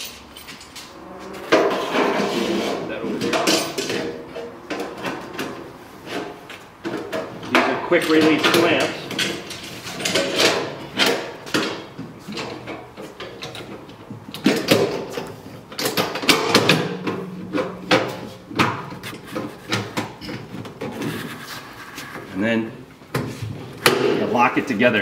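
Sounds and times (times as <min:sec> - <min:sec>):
metal clamps clanking and clicking: 0:03.2 - 0:05.6, 0:06.2 - 0:18.2.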